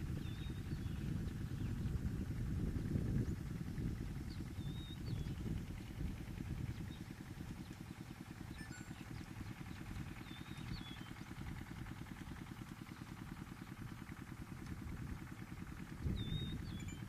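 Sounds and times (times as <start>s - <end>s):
vehicle engine idling: 0.0s - 17.0s
bird chirping: 4.3s - 5.5s, 6.8s - 11.3s, 16.0s - 17.0s.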